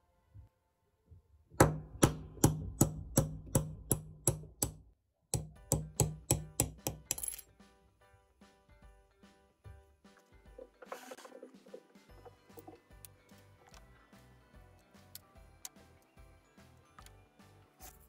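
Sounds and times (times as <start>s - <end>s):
hammer tapping metal punch: 1.6s - 7.4s.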